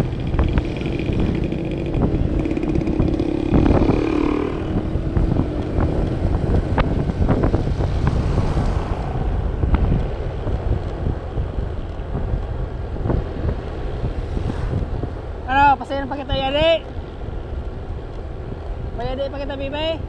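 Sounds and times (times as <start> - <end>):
scooter engine: 0.0 - 11.5
wind rushing over microphone: 0.0 - 20.0.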